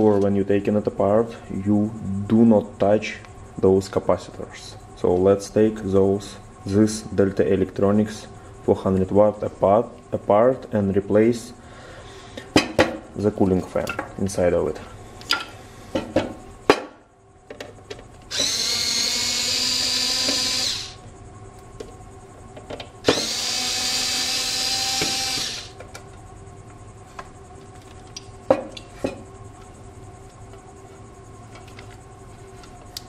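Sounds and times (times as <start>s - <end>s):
electric screwdriver motor running: 18.3s - 21.0s, 23.0s - 25.8s.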